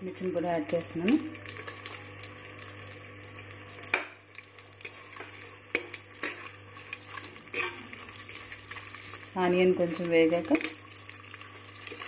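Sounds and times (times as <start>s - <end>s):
onions sizzling in hot oil: 0.0s - 12.0s
spatula scraping a pot: 4.8s - 8.9s.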